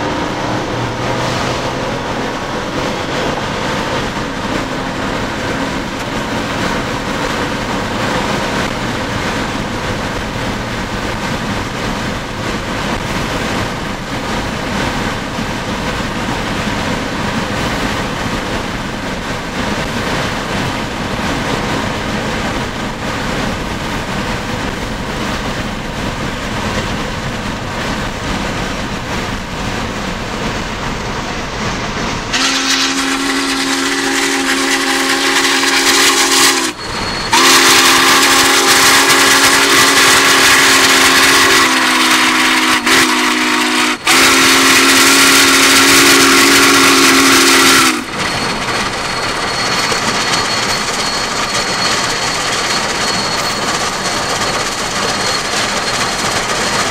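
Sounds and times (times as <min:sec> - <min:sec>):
rushing noise of travel: 0:00.0 - 0:56.9
steam locomotive whistle: 0:32.3 - 0:56.9.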